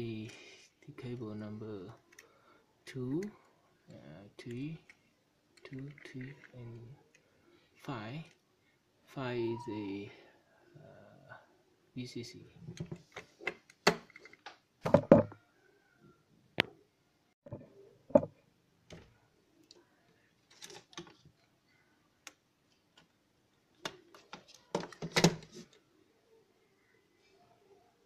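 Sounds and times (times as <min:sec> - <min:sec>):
equipment handled on wooden desk: 0:14.2 - 0:15.4, 0:17.5 - 0:18.3
thumps on desk: 0:14.9 - 0:15.4, 0:17.5 - 0:18.3.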